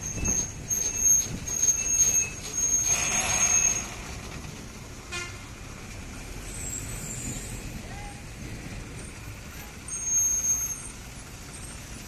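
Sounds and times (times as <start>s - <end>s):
high-pitched squeal: 0.0s - 4.2s, 9.6s - 11.1s
truck road rumble: 0.0s - 12.0s.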